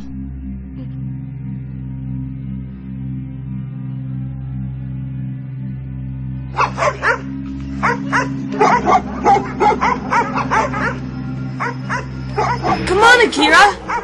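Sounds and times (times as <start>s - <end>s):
steady low drone: 0.0s - 14.0s
dog yipping and whimpering: 7.8s - 11.0s, 11.6s - 12.8s.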